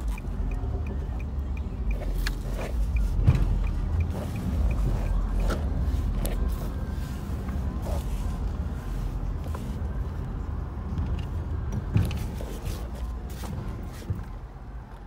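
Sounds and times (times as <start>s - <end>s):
light even ticking: 0.0s - 5.8s
car engine and road rumble: 0.0s - 15.0s.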